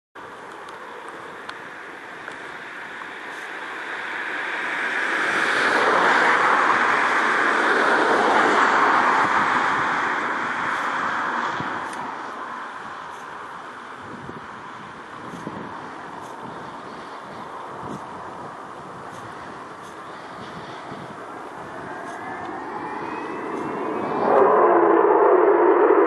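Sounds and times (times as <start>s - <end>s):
jet bomber engines roaring: 0.2s - 26.0s.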